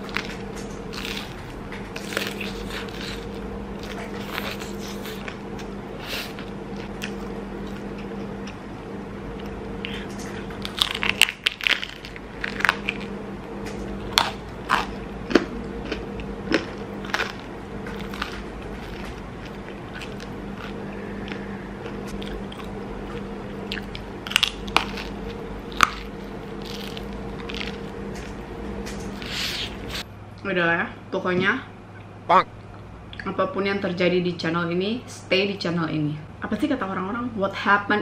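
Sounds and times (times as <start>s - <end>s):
crunchy pizza chewing: 0.0s - 8.6s, 9.3s - 30.1s
low hum: 0.0s - 38.0s.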